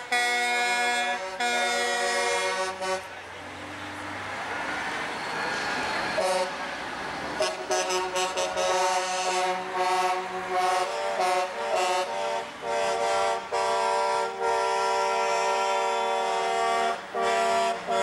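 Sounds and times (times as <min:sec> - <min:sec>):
truck air horns blowing: 0:00.0 - 0:03.2, 0:06.2 - 0:06.6, 0:07.4 - 0:18.0.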